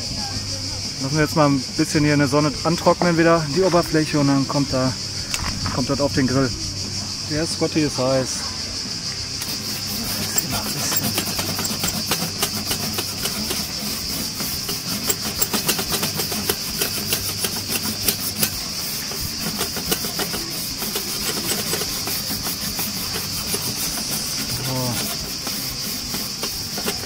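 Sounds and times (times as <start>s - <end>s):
steady hiss: 0.0s - 27.0s
wire brush scrubbing a grill grate: 9.4s - 27.0s.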